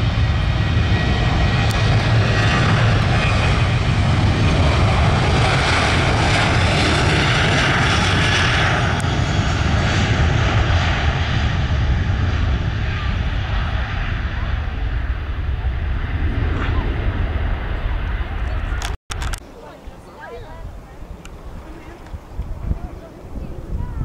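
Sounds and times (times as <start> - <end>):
jet engines running at high power: 0.0 - 18.8.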